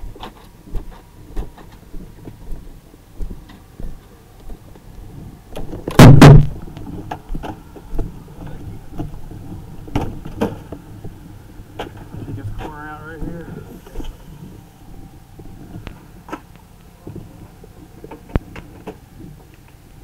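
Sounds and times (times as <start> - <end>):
loud metal crash: 5.9 - 6.6.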